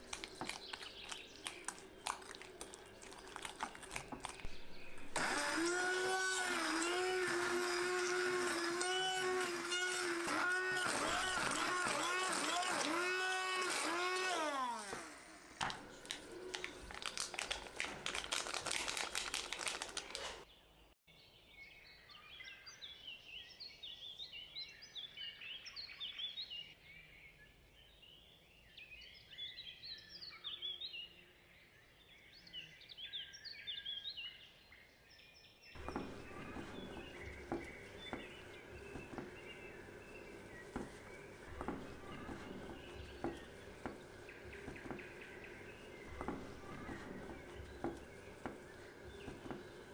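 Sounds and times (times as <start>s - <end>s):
crumbly scraping: 0.0s - 20.4s, 35.8s - 49.9s
short high squeaks: 5.0s - 15.3s
spoon scraping glass bowl: 35.8s - 49.7s.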